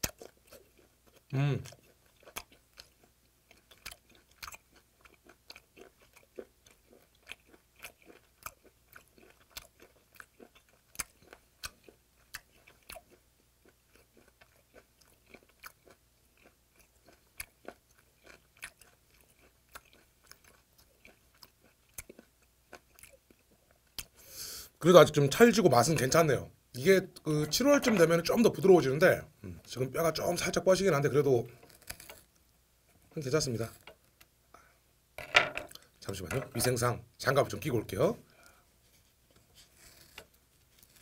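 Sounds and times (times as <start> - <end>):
crunchy chewing: 0.0 - 24.2, 31.5 - 32.4, 38.3 - 41.0.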